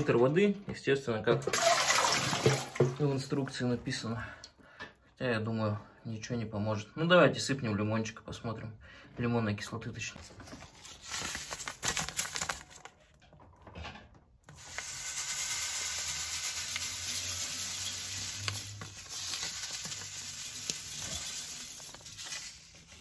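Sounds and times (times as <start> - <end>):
paper packet rustling: 10.0 - 13.5, 14.5 - 23.0
granules hissing onto metal: 14.5 - 22.9.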